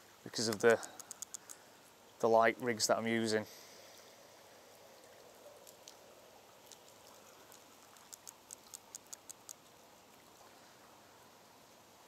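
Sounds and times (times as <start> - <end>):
faint rain and river hiss: 0.0 - 12.0
fishing reel clicking: 0.5 - 1.6.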